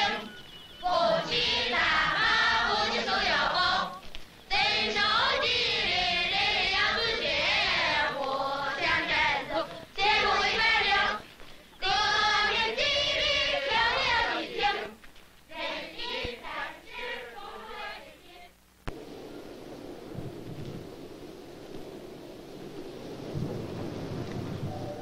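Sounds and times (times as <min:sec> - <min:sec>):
choir singing: 0:00.0 - 0:11.2, 0:11.8 - 0:18.5
faint low rushing noise: 0:11.8 - 0:25.0.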